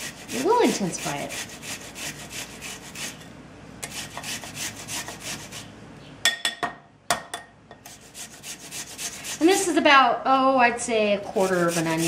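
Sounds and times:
onion grated on a grater: 0.0s - 5.7s, 7.9s - 9.8s, 11.3s - 12.0s.

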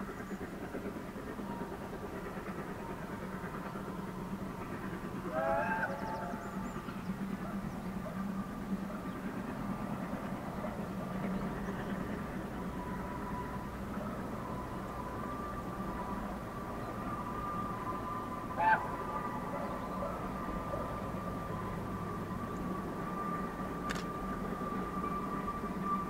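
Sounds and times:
steam train rumbling: 0.0s - 26.0s
faint steady tone: 6.1s - 26.0s
wavering pitched call: 18.5s - 20.9s.

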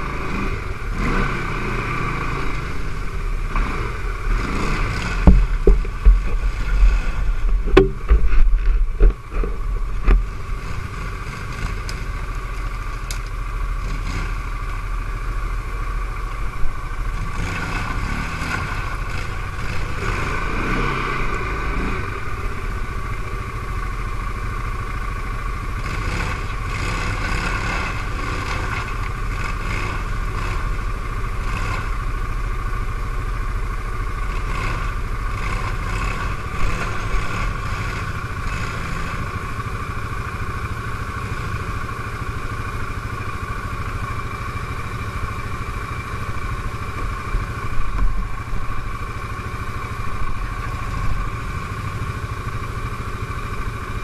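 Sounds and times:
atv engine running: 0.0s - 54.0s
sharp knocks: 5.1s - 10.3s
clattering and scraping: 5.2s - 10.5s.

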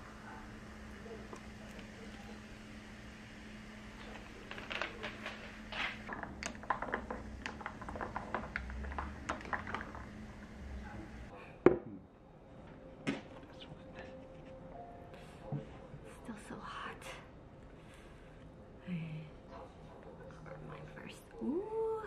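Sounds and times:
carbonation fizzing: 3.9s - 11.3s.

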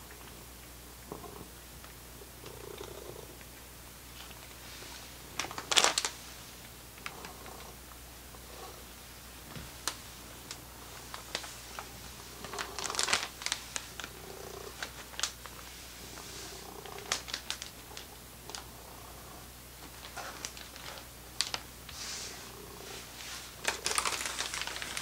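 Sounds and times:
cat purring: 0.0s - 3.6s, 7.0s - 25.0s
plastic bag crinkling: 5.3s - 6.2s, 9.8s - 18.7s, 19.8s - 21.7s, 23.0s - 25.0s.

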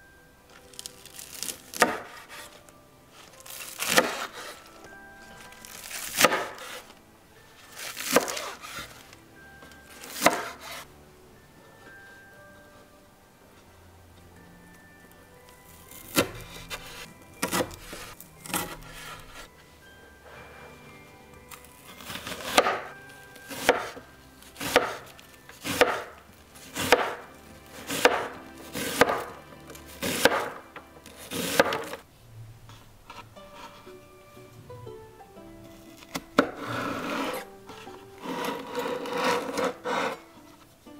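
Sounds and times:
knife slicing scallions: 3.4s - 4.6s, 5.6s - 6.9s, 7.7s - 8.9s, 10.0s - 10.8s, 21.9s - 24.0s, 24.6s - 32.0s.

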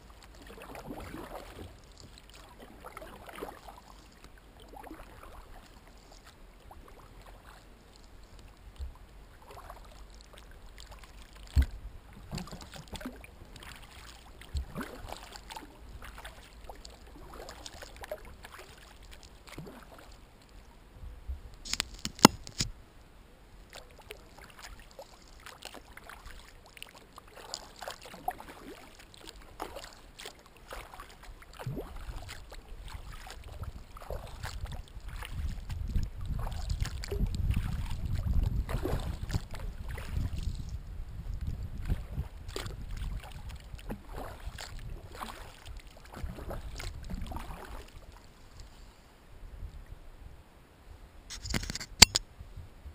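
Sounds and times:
paddle dipping and dripping: 0.0s - 20.8s, 23.5s - 49.0s
water lapping at hull: 0.0s - 22.7s, 23.5s - 49.2s
sharp knocks and clicks: 51.3s - 52.2s.

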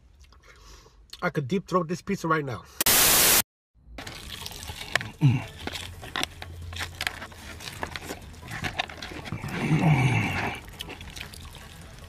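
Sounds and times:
person eating noisily: 4.2s - 12.0s.

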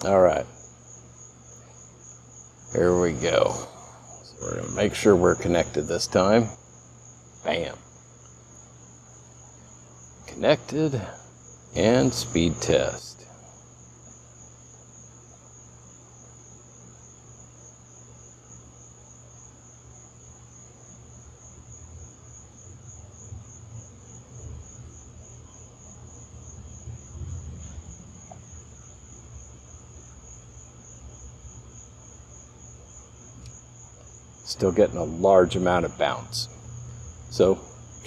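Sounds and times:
crickets trilling: 0.0s - 38.0s.

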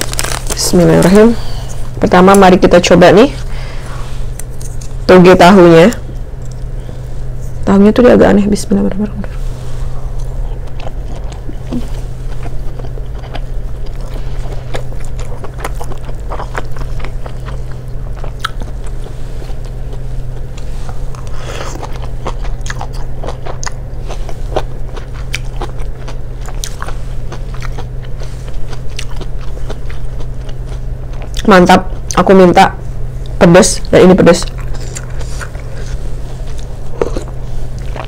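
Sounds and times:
low hum: 0.0s - 38.0s
crunchy chewing: 9.4s - 32.3s, 34.4s - 38.0s.

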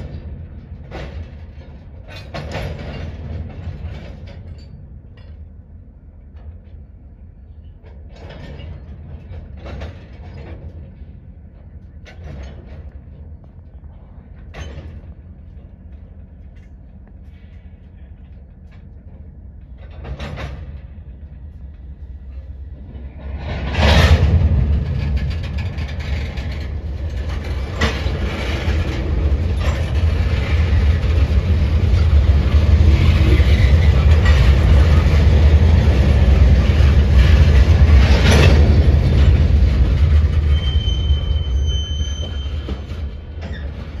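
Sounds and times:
freight cars clanking: 0.0s - 5.5s, 22.4s - 44.0s
freight cars rumbling on rails: 0.0s - 44.0s
high squeal: 40.4s - 43.8s.

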